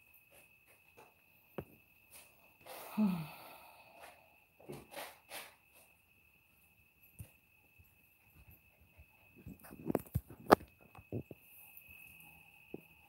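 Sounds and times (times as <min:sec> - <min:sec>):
soft breaths: 0:02.1 - 0:04.7
person sighing: 0:02.6 - 0:04.2.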